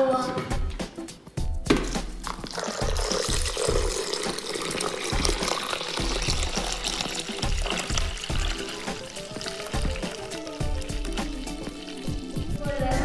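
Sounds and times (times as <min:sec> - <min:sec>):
background music with steady beat: 0:00.0 - 0:13.0
water pouring and splashing: 0:01.8 - 0:13.0.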